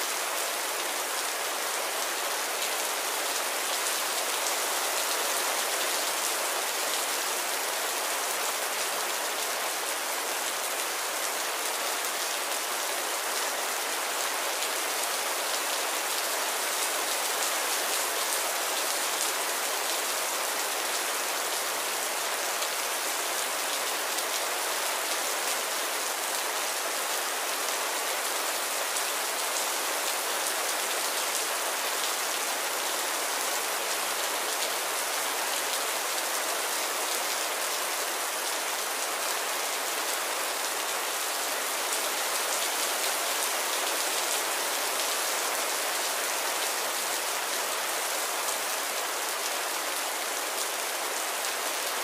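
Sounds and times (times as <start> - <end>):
heavy rain falling: 0.0 - 52.0.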